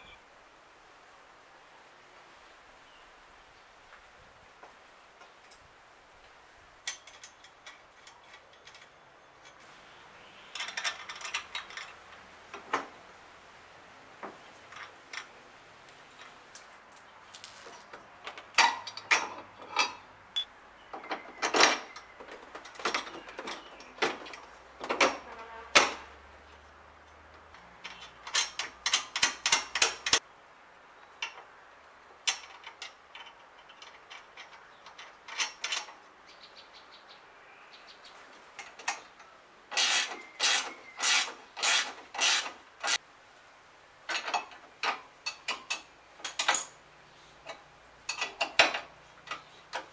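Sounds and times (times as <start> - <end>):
wrench clinking on bolts: 6.8 - 9.7, 27.1 - 30.2, 44.1 - 46.8, 47.5 - 49.9.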